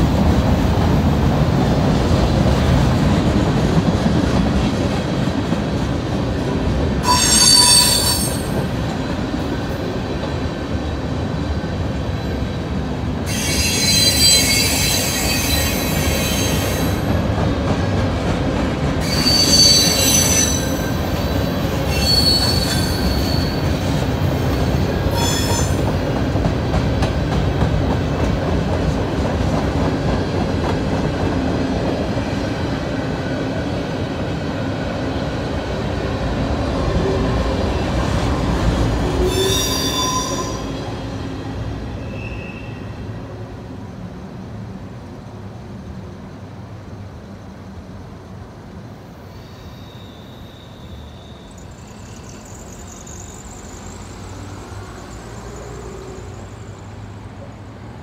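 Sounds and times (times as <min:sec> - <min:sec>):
high-pitched wheel squeal: 0:07.0 - 0:08.5, 0:13.3 - 0:17.0, 0:19.0 - 0:21.1, 0:21.8 - 0:23.8, 0:25.1 - 0:25.8, 0:39.2 - 0:40.8, 0:42.0 - 0:43.0, 0:49.3 - 0:54.4.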